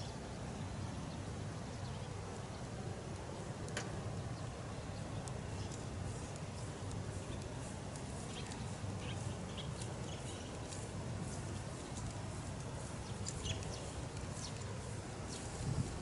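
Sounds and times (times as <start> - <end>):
birds chirping: 0.0 - 16.0
wind on microphone: 13.5 - 16.0.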